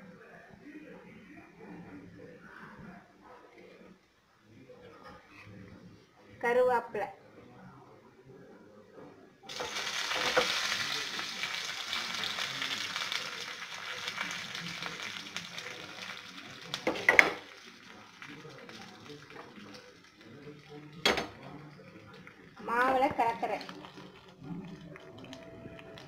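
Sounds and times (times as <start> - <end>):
leaves sizzling and crackling in oil: 9.5 - 20.9.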